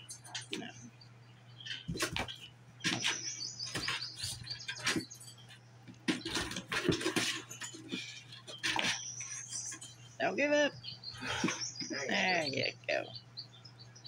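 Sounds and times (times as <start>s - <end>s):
low steady hum: 0.0s - 14.0s
kittens scratching cardboard: 1.7s - 10.0s.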